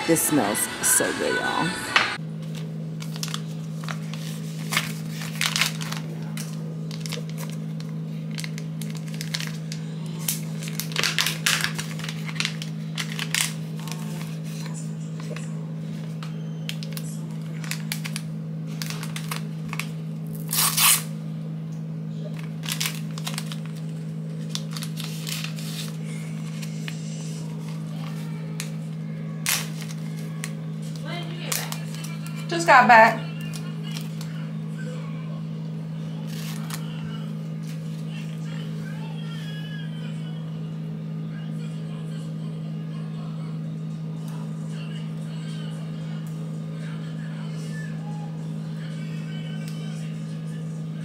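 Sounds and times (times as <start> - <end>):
steady low hum: 0.0 - 51.0
plastic packaging crinkling: 2.4 - 21.1, 22.3 - 28.8, 29.4 - 32.5, 33.3 - 34.4, 36.2 - 37.0.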